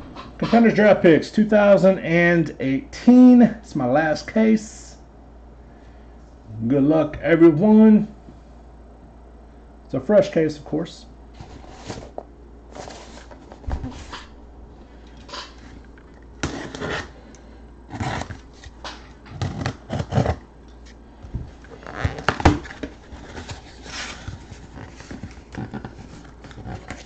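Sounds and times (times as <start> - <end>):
cardboard rustling and scraping: 11.3 - 14.3, 16.4 - 17.2, 17.9 - 27.0.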